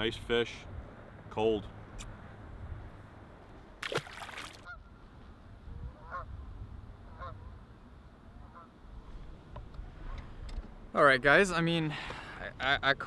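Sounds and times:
water splash: 3.8s - 4.7s
geese honking: 8.4s - 8.7s.

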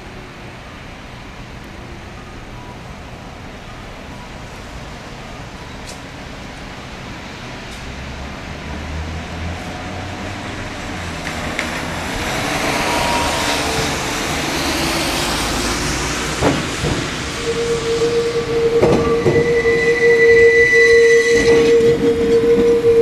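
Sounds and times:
tram wheels rumbling on rails: 0.0s - 23.0s
wheels clacking over rail joints: 10.9s - 17.6s
wheels squealing on curve: 11.3s - 23.0s.

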